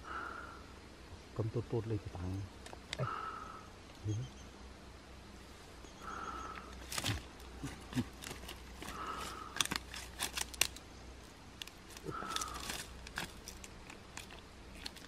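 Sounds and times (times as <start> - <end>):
dry crackles and clicks: 2.3 - 3.0, 6.5 - 15.0.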